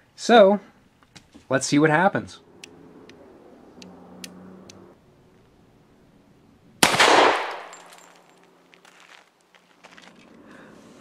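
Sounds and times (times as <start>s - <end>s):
pistol shot with echo: 6.8s - 7.8s.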